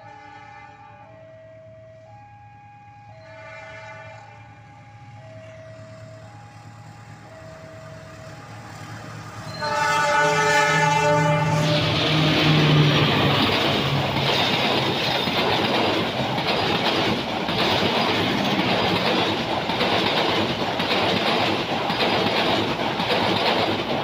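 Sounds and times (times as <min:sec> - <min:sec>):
diesel locomotive passing: 0:00.0 - 0:24.0
train coaches rumbling: 0:03.3 - 0:24.0
wheels clickety-clack on rail joints: 0:05.2 - 0:24.0.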